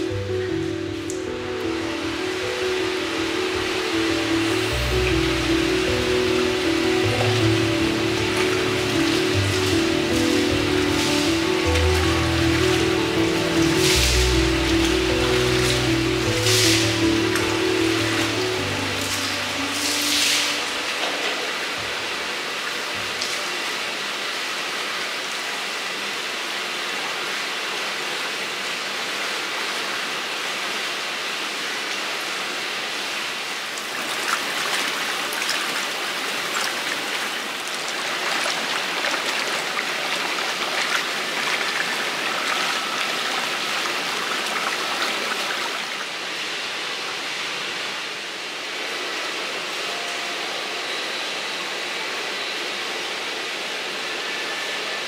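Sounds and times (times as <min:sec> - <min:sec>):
water splashing and trickling: 0:00.0 - 0:24.5, 0:33.5 - 0:46.5
water running: 0:00.0 - 0:24.8, 0:33.6 - 0:46.5.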